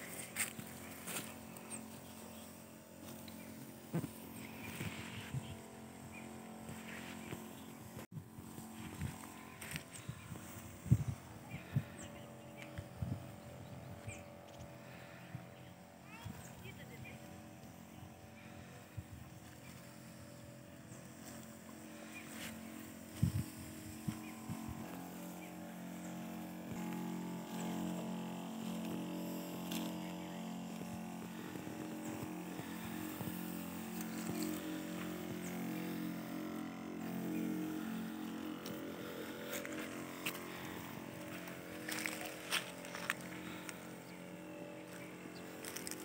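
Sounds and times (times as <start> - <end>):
sprayer pump humming: 0.0 - 46.0
wand spraying: 19.6 - 46.0.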